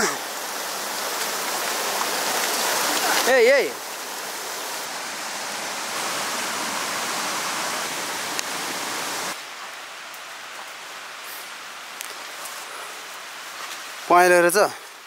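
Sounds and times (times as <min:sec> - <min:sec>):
rushing water: 0:00.0 - 0:15.0.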